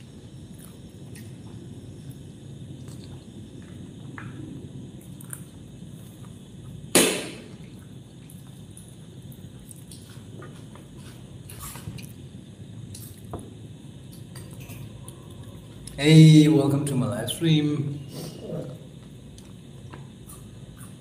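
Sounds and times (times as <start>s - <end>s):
person chewing: 0.5s - 1.4s.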